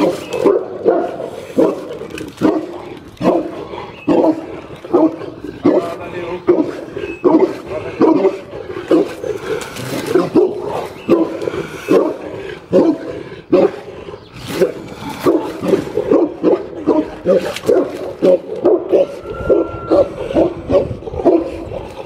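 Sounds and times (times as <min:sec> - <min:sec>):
dogs barking deeply: 0:00.0 - 0:22.0.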